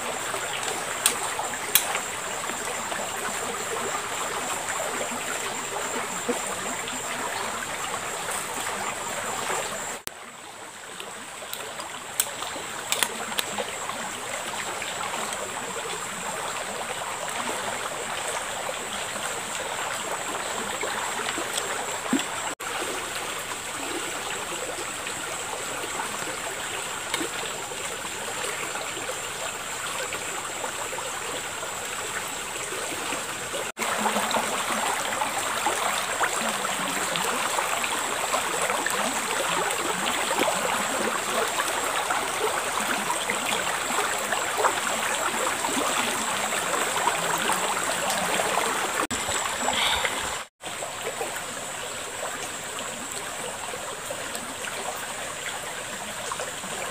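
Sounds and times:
faint clicks: 0:00.5 - 0:02.1
river water rushing: 0:32.7 - 0:56.9.

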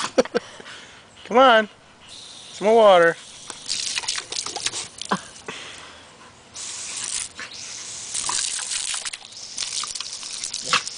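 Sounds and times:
hose spray hissing and splashing: 0:02.2 - 0:05.2, 0:06.6 - 0:10.9
dog snapping at water: 0:03.5 - 0:05.1, 0:08.2 - 0:10.9.

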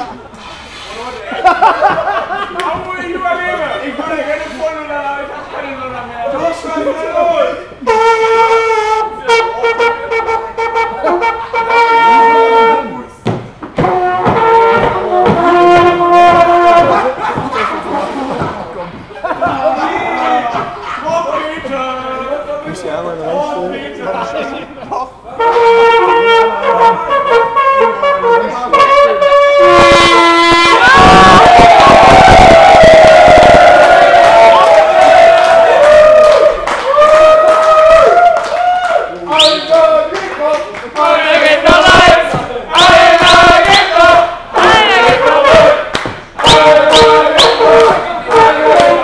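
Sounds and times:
trumpet playing: 0:07.8 - 0:13.2, 0:13.8 - 0:17.4, 0:25.4 - 0:35.6, 0:41.1 - 0:45.8, 0:46.4 - 0:49.0
crowd shouting and cheering: 0:08.8 - 0:21.8, 0:29.7 - 0:49.0.

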